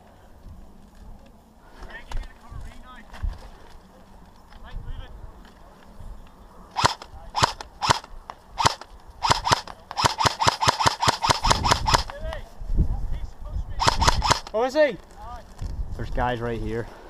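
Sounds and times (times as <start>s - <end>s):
airsoft rifle shots: 6.7s - 12.4s, 13.8s - 14.7s.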